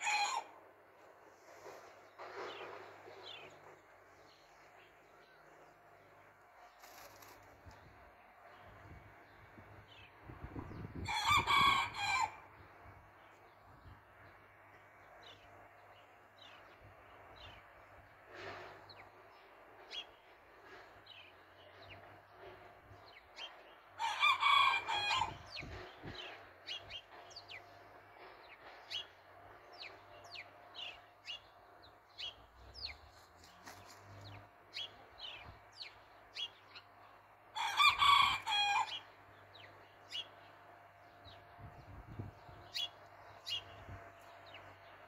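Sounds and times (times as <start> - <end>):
rooster crowing: 0.0 - 0.6, 11.0 - 12.4, 24.0 - 25.4, 37.5 - 39.0.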